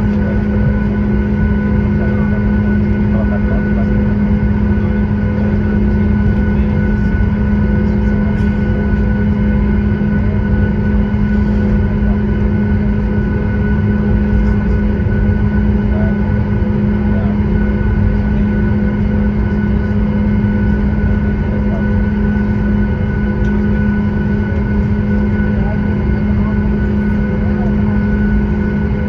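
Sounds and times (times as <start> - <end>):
airplane cabin engine drone: 0.0 - 29.0.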